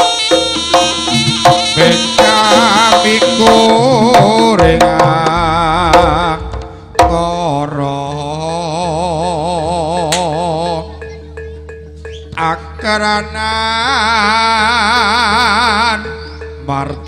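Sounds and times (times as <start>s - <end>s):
hand drums and struck percussion: 0.0s - 13.5s.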